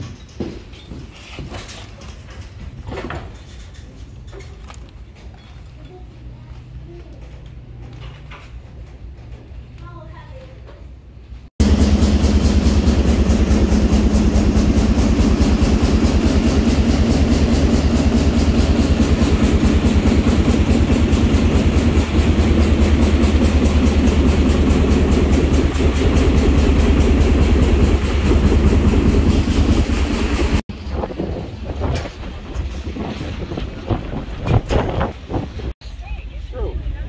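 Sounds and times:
engine running loudly: 11.6s - 30.6s.

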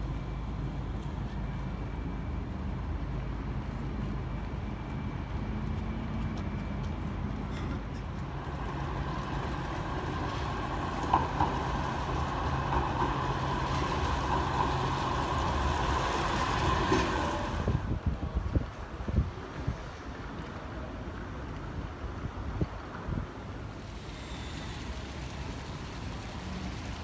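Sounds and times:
tram humming and whining: 0.0s - 27.0s.

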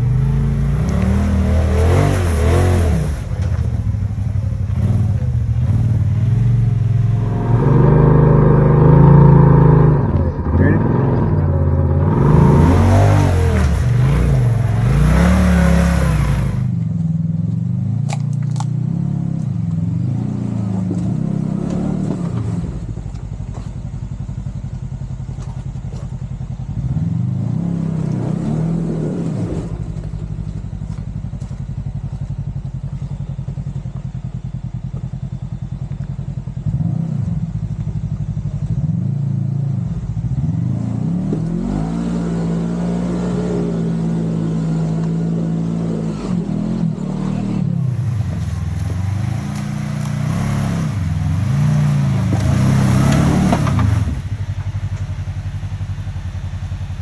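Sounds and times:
utv engine revving: 0.0s - 56.6s.

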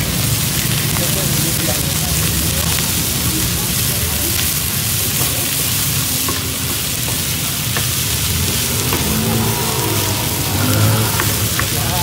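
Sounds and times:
meat sizzling in a frying pan: 0.0s - 12.0s
wooden spatula scraping a pan: 5.2s - 12.0s.

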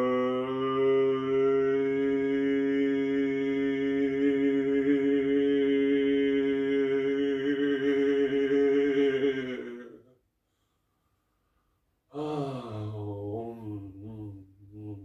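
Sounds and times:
man holding a long vocal tone: 0.0s - 10.1s, 12.1s - 15.0s.

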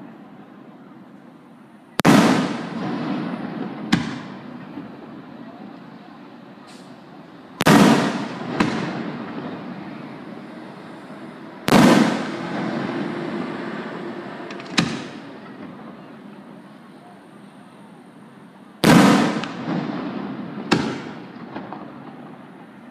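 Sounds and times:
smaller firework bang: 2.0s - 4.4s, 7.6s - 9.2s, 11.7s - 12.8s, 18.8s - 22.2s
firework shells booming: 2.0s - 5.1s, 6.7s - 10.0s, 10.7s - 13.8s, 14.5s - 15.8s, 18.8s - 22.6s.

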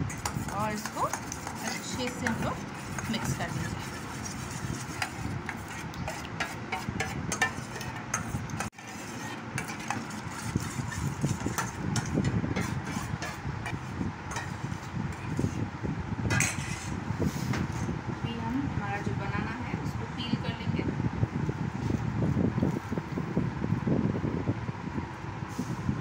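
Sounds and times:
spoon scraping metal bowl: 0.0s - 15.7s, 16.3s - 18.0s
steady background noise: 0.0s - 26.0s.

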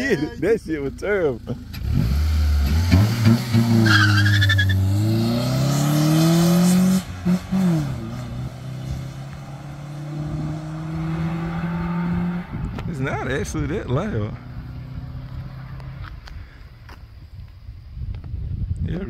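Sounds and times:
car engine accelerating: 0.0s - 16.4s
tire squeal: 3.7s - 4.9s.

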